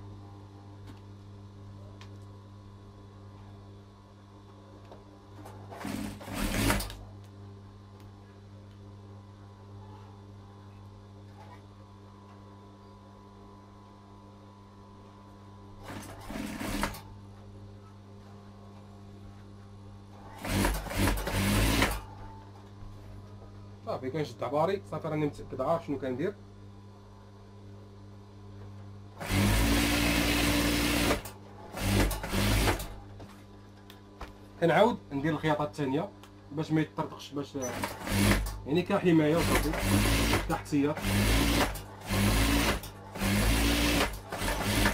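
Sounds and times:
steady electric hum: 0.0s - 44.9s
sewing machine stitching: 5.6s - 7.0s, 15.8s - 17.0s, 20.3s - 22.1s, 29.2s - 32.9s, 37.6s - 38.6s, 39.3s - 44.9s.

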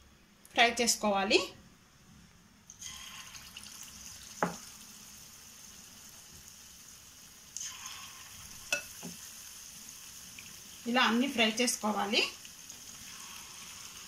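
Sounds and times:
chicken sizzling in hot oil: 2.8s - 14.0s.

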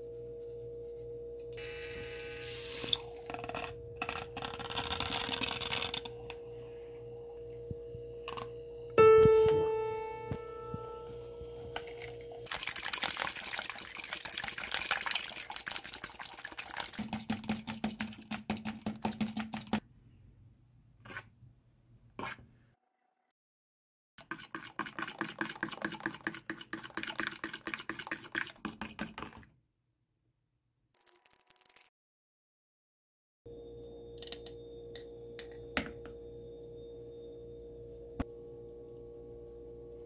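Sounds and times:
whisk clicking against plastic bowl: 17.0s - 19.8s.

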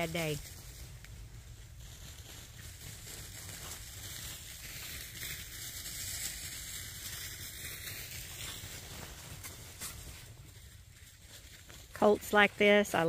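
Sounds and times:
dry leaves crunching underfoot: 0.0s - 13.0s.

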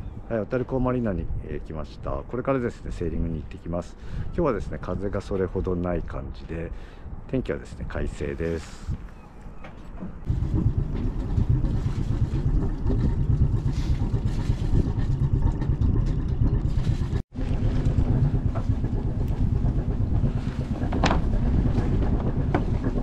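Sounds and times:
boat engine idling: 10.2s - 23.0s.

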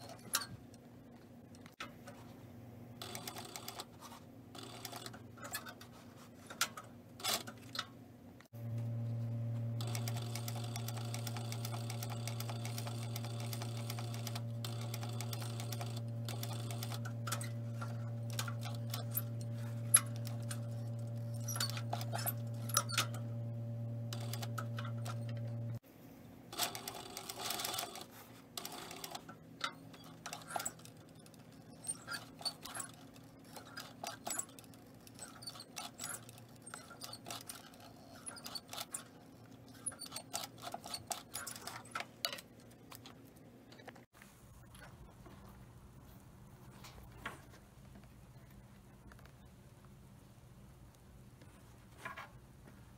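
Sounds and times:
sewing machine motor humming: 8.6s - 25.8s.

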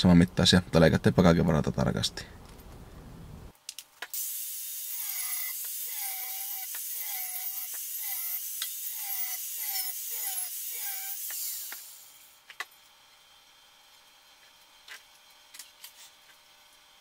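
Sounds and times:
angle grinder cutting metal pipe: 4.1s - 12.4s.

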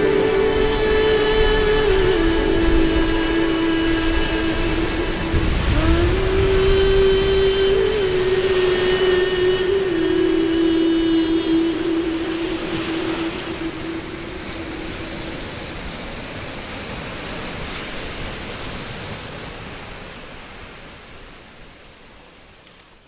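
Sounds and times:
low held tone: 0.0s - 16.2s
small waves breaking on beach: 0.0s - 23.0s.

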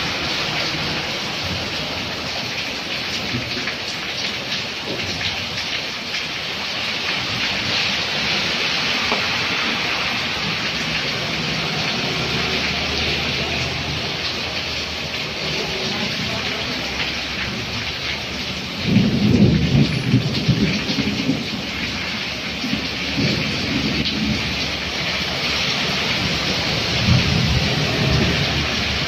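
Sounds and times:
vehicle passing on wet road: 0.0s - 3.9s, 6.2s - 29.0s
heavy rain on street: 0.0s - 29.0s
low rumble of thunder: 18.7s - 21.7s, 26.9s - 28.9s.

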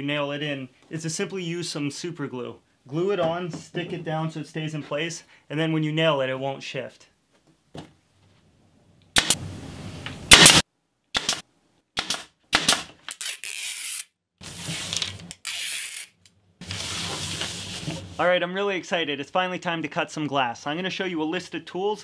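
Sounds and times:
nail gun shots: 9.2s - 9.4s, 10.3s - 11.4s, 12.0s - 12.9s.

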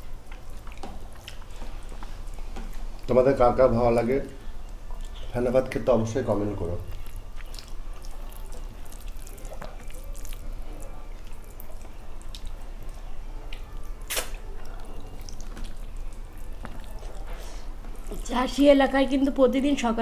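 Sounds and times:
chewing and lip smacks: 0.2s - 3.1s, 4.6s - 5.3s, 6.8s - 18.2s.

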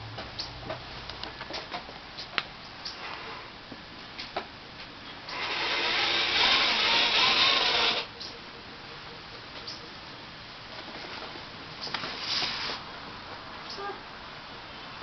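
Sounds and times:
cardboard box rubbing scrape: 12.0s - 12.8s.

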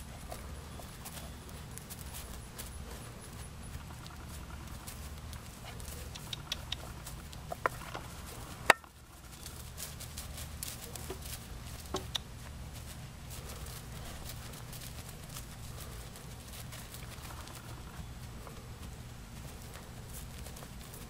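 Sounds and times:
hoofbeats on grass: 0.0s - 21.0s
light clicks: 5.3s - 7.0s.

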